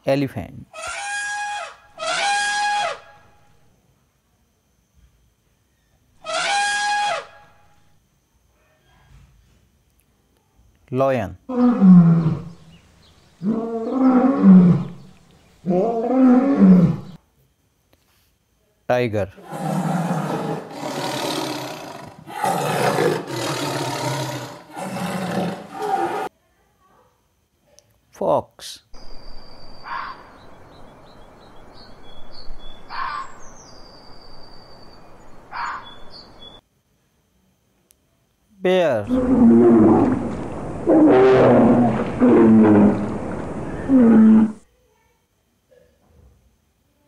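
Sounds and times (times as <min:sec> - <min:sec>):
steady background hiss: 0:00.0 - 0:47.0
fox harsh cries: 0:00.8 - 0:03.2, 0:06.2 - 0:07.4, 0:32.9 - 0:33.2, 0:35.5 - 0:35.9
lion roaring: 0:11.5 - 0:12.6, 0:13.4 - 0:17.2, 0:19.4 - 0:26.3, 0:39.0 - 0:44.6
birds chirping: 0:29.0 - 0:36.6, 0:39.0 - 0:44.6.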